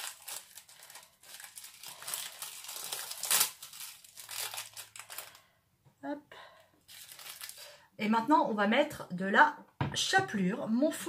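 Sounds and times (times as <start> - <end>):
cheese slices rustling and crinkling: 0.0 - 5.5, 6.9 - 7.8.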